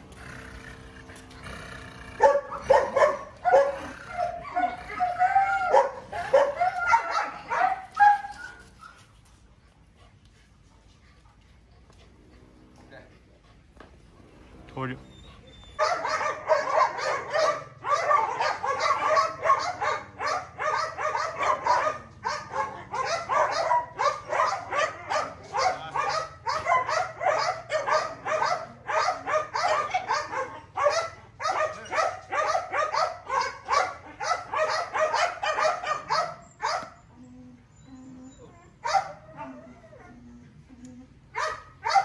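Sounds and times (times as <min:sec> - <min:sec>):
puppy barking and yipping: 0:02.2 - 0:09.1, 0:15.2 - 0:40.2, 0:41.3 - 0:42.0.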